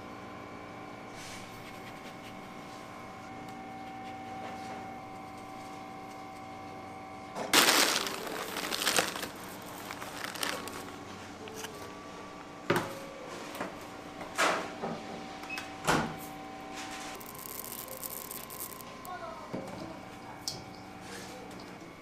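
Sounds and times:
equipment humming: 0:04.8 - 0:12.8, 0:16.4 - 0:20.4
plastic bag rustling: 0:07.6 - 0:11.7, 0:17.2 - 0:19.1.

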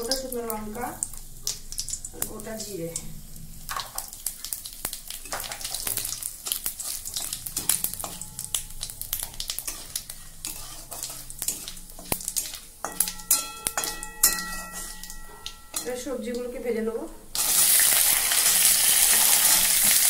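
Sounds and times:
spices sizzling in hot oil: 0:00.0 - 0:20.0
metal spatula scraping pan: 0:05.2 - 0:16.4, 0:17.4 - 0:20.0.

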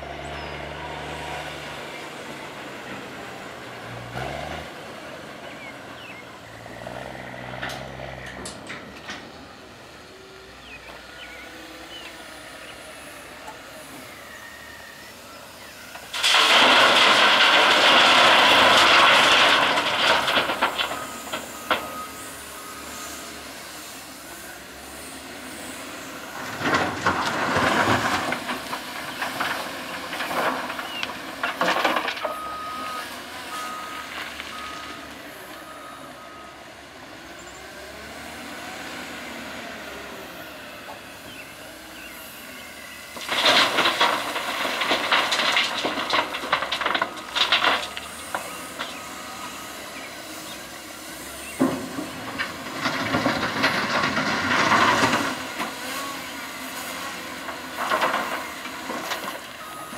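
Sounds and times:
diesel engines running: 0:00.0 - 0:59.9
rocks and soil crashing into truck bed: 0:16.0 - 0:22.3, 0:26.4 - 0:34.9, 0:43.1 - 0:59.9
reverse alarm beeps: 0:20.9 - 0:23.1, 0:32.3 - 0:36.6, 0:59.6 - 0:59.9.

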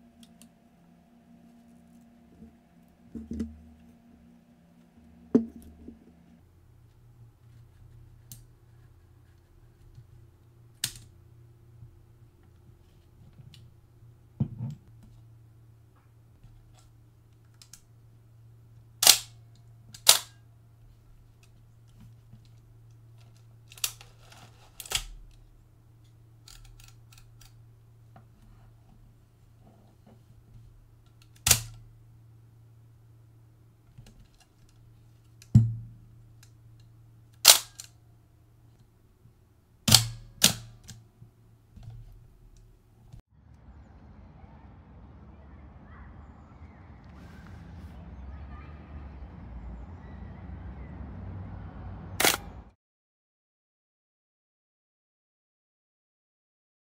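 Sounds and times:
camera shutter clacks: 0:52.2 - 0:52.5.

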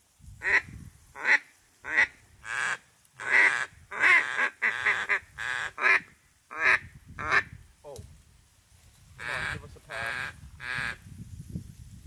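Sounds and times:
duck quacking: 0:01.2 - 0:07.5, 0:09.2 - 0:11.0.

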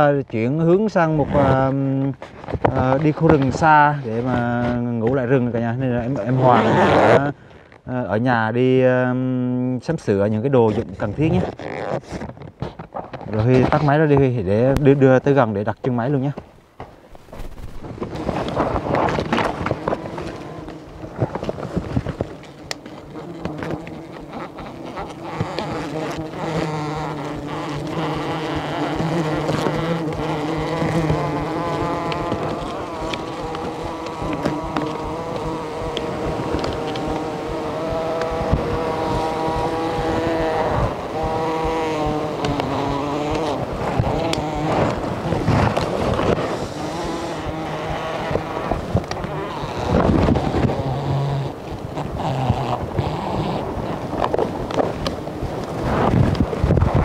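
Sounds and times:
leaves and suit rustling: 0:10.6 - 0:57.0
honeybees buzzing: 0:13.4 - 0:57.0.

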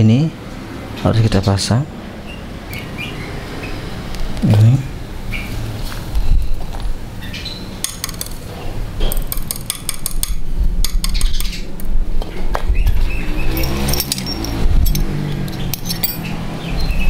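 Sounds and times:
metal parts clinking against engine: 0:07.8 - 0:08.5, 0:13.5 - 0:16.4.

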